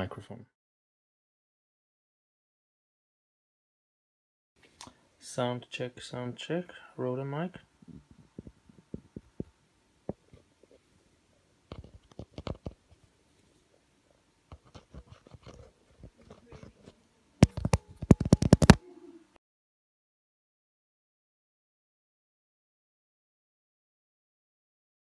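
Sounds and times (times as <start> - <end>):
fingers scratching on microphone: 11.7 - 13.0, 14.5 - 18.8
rapid taps on phone: 17.4 - 18.8.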